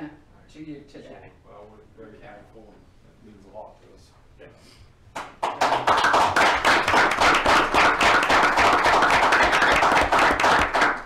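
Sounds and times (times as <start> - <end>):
crowd applauding: 5.2 - 11.0.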